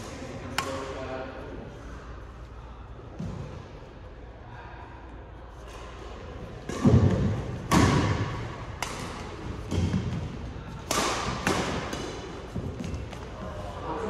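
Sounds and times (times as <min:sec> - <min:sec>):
racket striking shuttlecock: 0:06.6 - 0:13.2.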